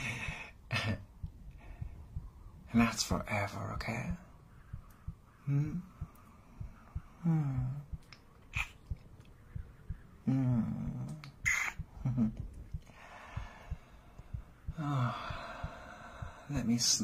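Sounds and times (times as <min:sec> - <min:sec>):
man humming and sighing: 0:05.4 - 0:06.1, 0:07.1 - 0:08.8, 0:10.2 - 0:12.9, 0:14.3 - 0:16.6
sharp breaths: 0:12.8 - 0:16.6.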